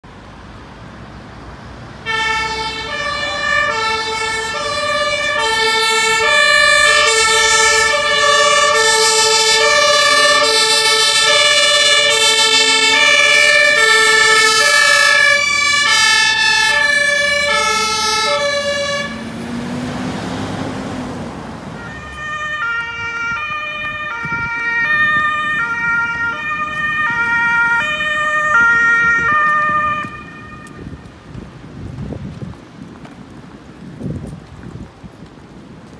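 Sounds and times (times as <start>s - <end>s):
passing traffic noise: 0.0s - 35.9s
two-tone siren: 2.0s - 20.7s, 21.7s - 30.9s.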